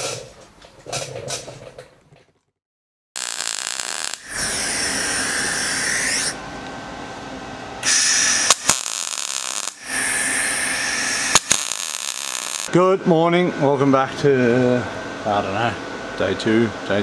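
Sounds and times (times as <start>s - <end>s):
electric grinder on steel: 3.2s - 6.4s, 7.8s - 12.7s.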